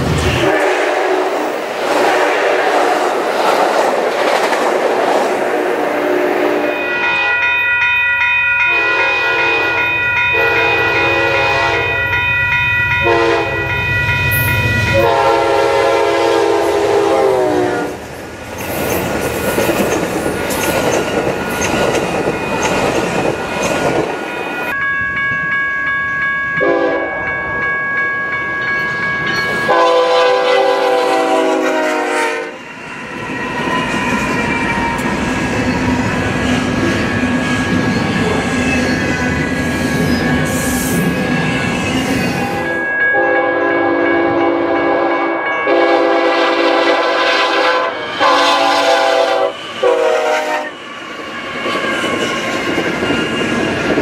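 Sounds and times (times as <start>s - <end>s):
train cars rumbling and clattering: 0.0s - 7.6s, 8.6s - 25.6s, 27.6s - 43.3s, 45.7s - 54.0s
freight train rumbling past: 0.0s - 54.0s
locomotive horn blasts: 0.4s - 2.8s, 5.6s - 7.4s, 8.7s - 12.1s, 13.0s - 13.7s, 14.9s - 18.0s, 26.6s - 27.2s, 29.7s - 32.6s, 43.2s - 50.8s.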